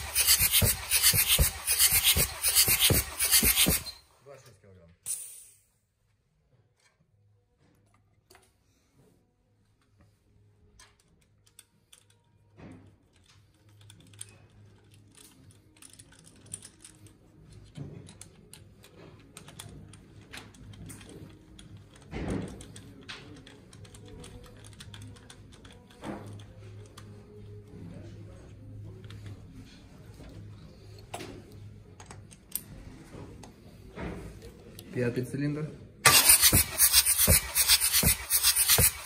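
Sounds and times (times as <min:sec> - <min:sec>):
tool knocks on engine: 0:36.1 - 0:39.0.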